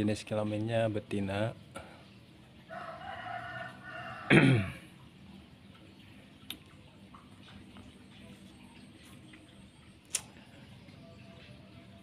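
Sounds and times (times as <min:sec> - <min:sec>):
rooster crowing: 0:02.7 - 0:04.7.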